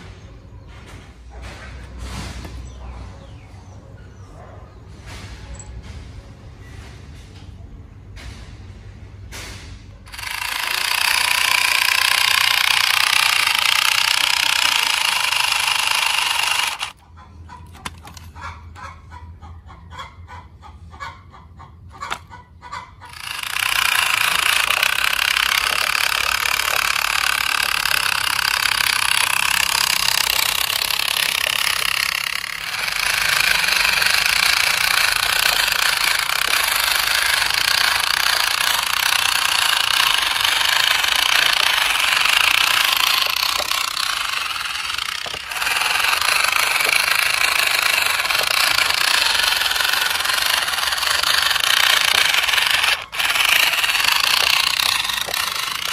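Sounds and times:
toy truck motor whirring: 10.0 - 18.9, 21.9 - 55.9.

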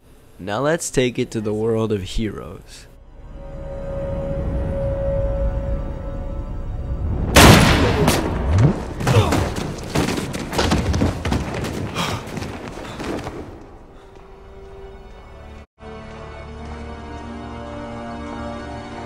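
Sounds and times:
dramatic film score: 2.9 - 19.0
loud bang: 7.0 - 9.5
heavy thuds and impacts: 7.4 - 13.6.

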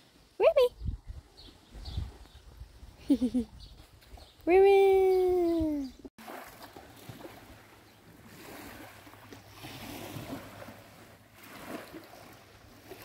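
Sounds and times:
waves lapping on pebbly shore: 6.2 - 13.0.

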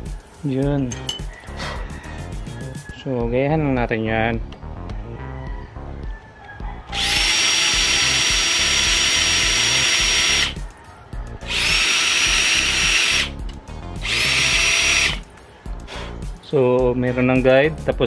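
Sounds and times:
electric drill whining: 6.9 - 10.6, 11.4 - 13.4, 14.0 - 15.2.

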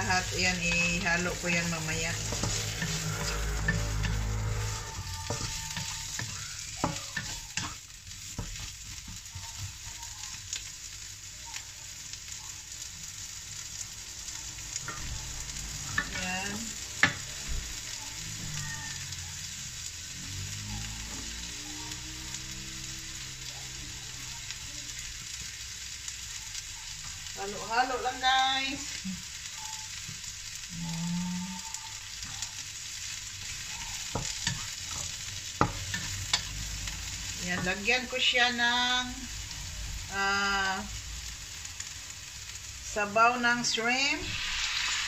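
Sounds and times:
wooden spatula scraping pan: 0.0 - 9.8
vegetables sizzling in oil: 0.0 - 45.0.

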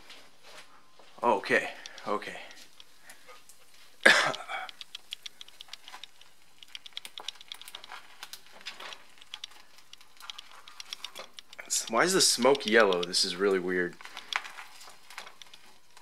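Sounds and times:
syrup crackling in a frying pan: 1.7 - 16.0.

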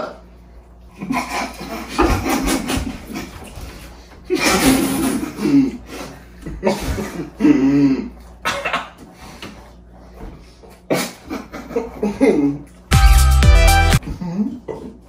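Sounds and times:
men coughing: 4.3 - 9.0.

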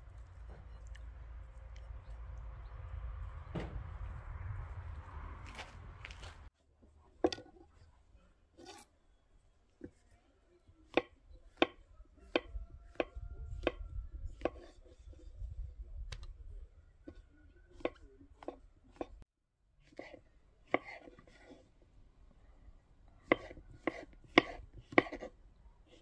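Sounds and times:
knife knocking on wooden board: 23.3 - 25.2.

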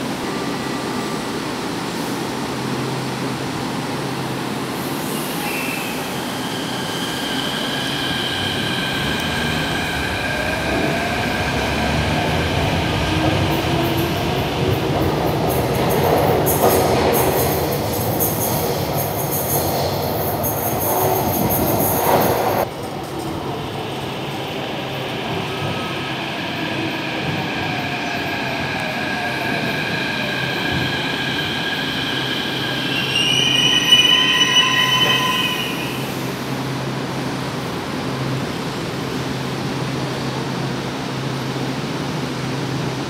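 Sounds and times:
train rushing noise: 0.0 - 43.0
brake squeal: 30.7 - 36.2.

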